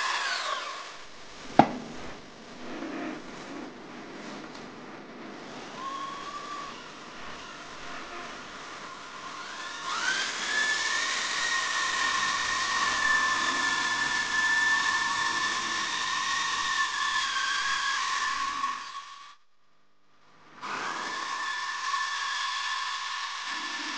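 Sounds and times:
electric drill motor whine: 0.0s - 1.1s, 5.7s - 19.4s, 20.6s - 23.9s.

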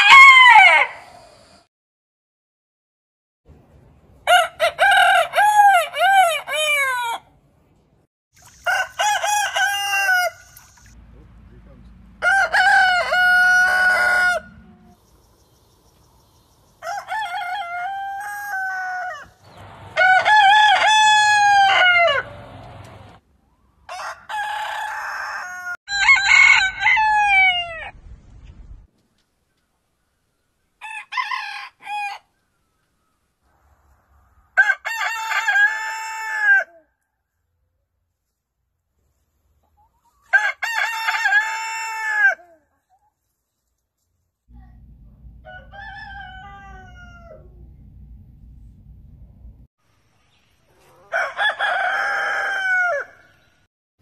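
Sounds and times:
roosters crowing: 0.0s - 1.2s, 4.2s - 7.3s, 8.6s - 10.6s, 12.2s - 14.9s, 16.7s - 22.6s, 23.8s - 28.0s, 30.8s - 32.3s, 34.6s - 36.8s, 40.2s - 42.5s, 45.4s - 47.6s, 50.8s - 53.5s.

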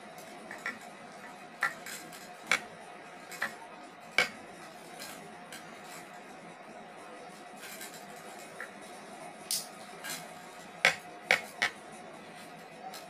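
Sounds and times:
ring light parts clicking and knocking: 10.9s - 11.8s.

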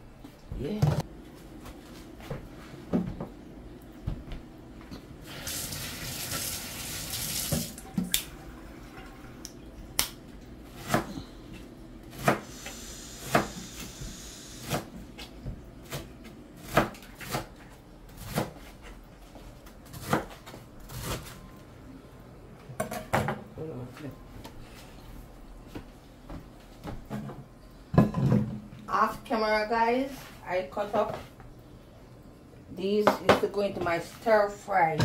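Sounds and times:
kitchen tap running: 5.2s - 9.6s.

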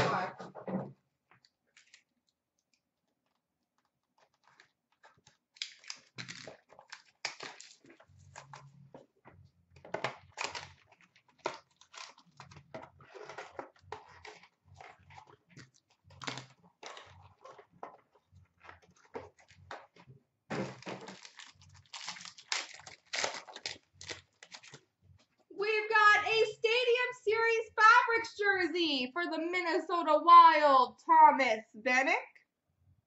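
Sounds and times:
plastic wrap crinkling and tearing: 1.4s - 8.8s, 9.8s - 24.9s
cardboard rustling: 3.2s - 25.4s.

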